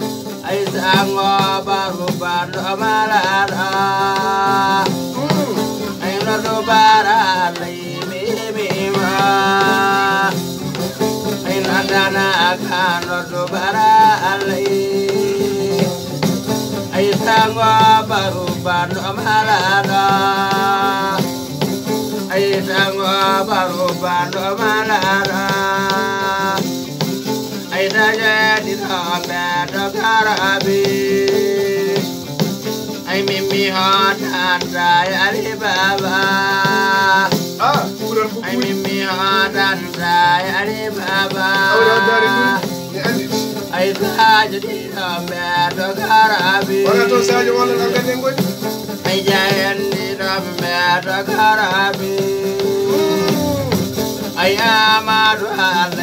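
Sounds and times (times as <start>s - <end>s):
man singing: 0.0s - 56.0s
plucked lute: 0.0s - 56.0s
shaken rattle: 35.4s - 56.0s
man singing wavering held notes: 52.2s - 54.0s.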